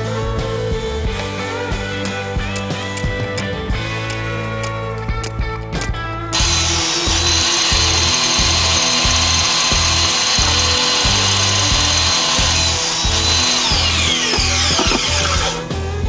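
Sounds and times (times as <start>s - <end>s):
table saw whining: 6.4s - 15.7s.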